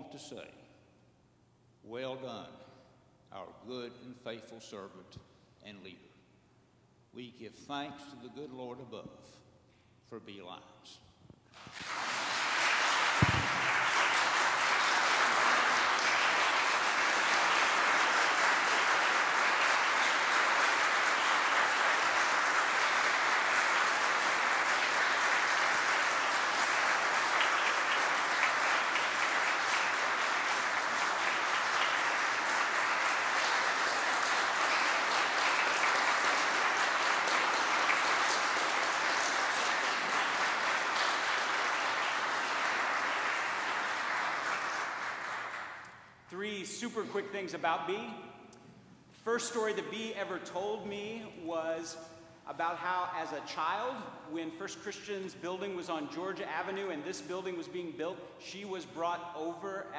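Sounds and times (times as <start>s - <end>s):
crowd applauding: 11.6s - 45.9s
low thump: 13.2s - 13.7s.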